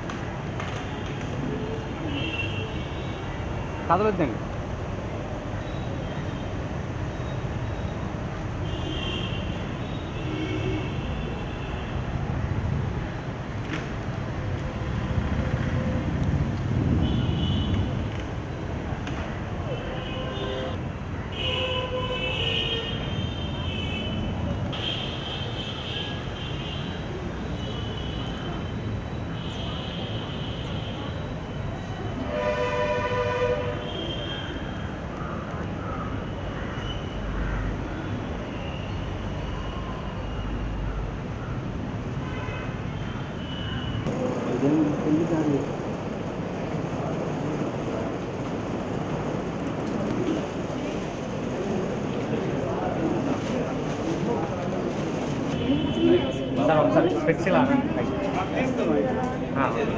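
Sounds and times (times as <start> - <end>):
distant traffic: 0.0 - 59.9
multi-tone horn blast: 32.3 - 33.8.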